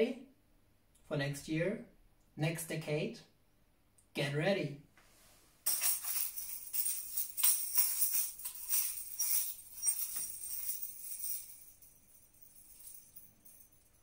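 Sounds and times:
tambourines jangling: 5.7s - 14.0s.

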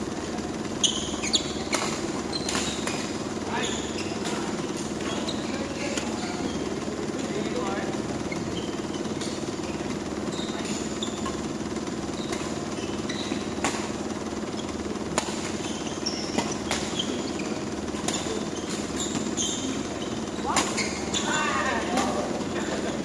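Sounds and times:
court shoes squeaking: 0.0s - 23.0s
steady low hum: 0.0s - 23.0s
racket hitting shuttlecock: 1.0s - 3.2s, 12.1s - 14.1s, 14.7s - 22.8s.

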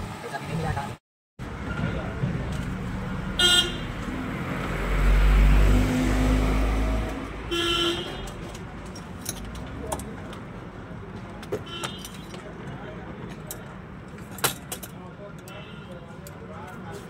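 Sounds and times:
vehicle engine rumbling past: 1.5s - 7.5s
vehicle horn toots: 3.4s - 3.9s, 7.5s - 8.4s.

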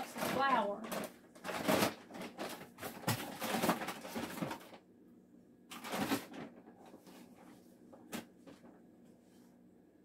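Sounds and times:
kitchen containers clattering: 0.0s - 4.7s.

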